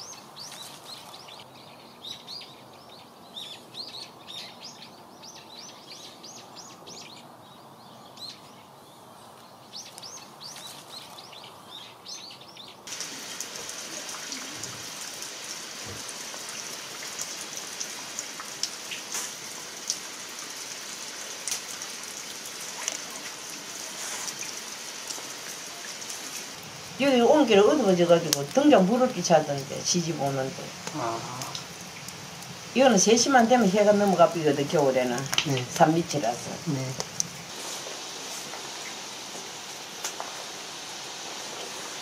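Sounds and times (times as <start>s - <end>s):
small birds chirping: 0.0s - 17.8s
wood fire crackling: 12.8s - 42.0s.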